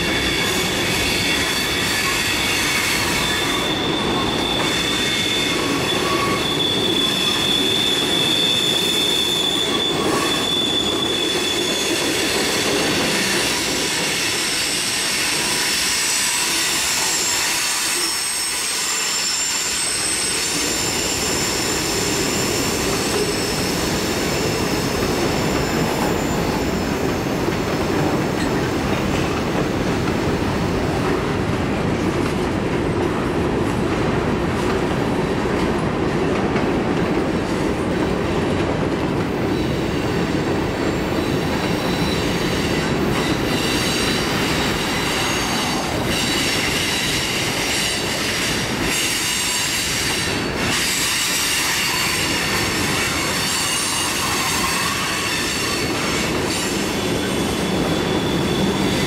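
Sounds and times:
high-pitched wheel squeals: 0:00.0 - 0:27.3, 0:41.2 - 0:59.0
steel wheels rumbling on rail: 0:00.0 - 0:59.0.

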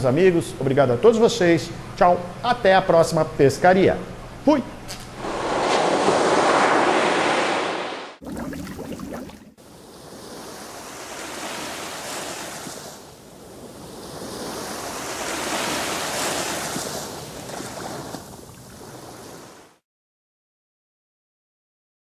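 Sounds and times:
ocean waves washing in: 0:05.1 - 0:19.8.

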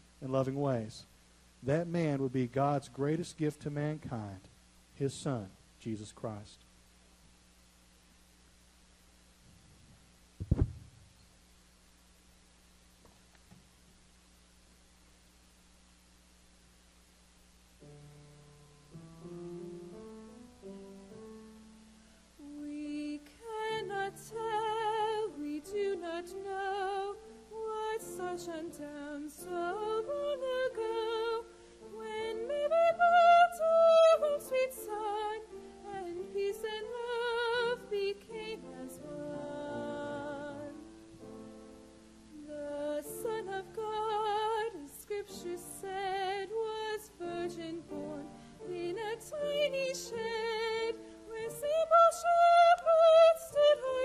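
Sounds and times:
woman singing with vibrato: 0:22.4 - 0:40.9, 0:42.4 - 0:54.0.

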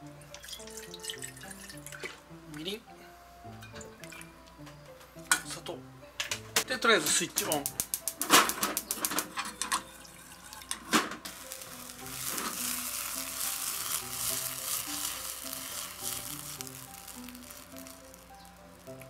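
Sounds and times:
soft background music: 0:00.0 - 0:19.0
gas stove igniter clicking: 0:06.2 - 0:09.8
burner hissing and sizzling: 0:07.1 - 0:19.0.

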